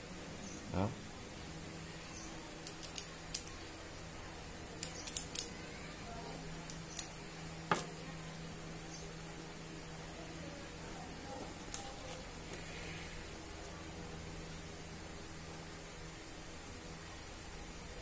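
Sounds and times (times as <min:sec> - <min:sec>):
metal parts clicking: 0:02.6 - 0:03.6, 0:04.8 - 0:05.5.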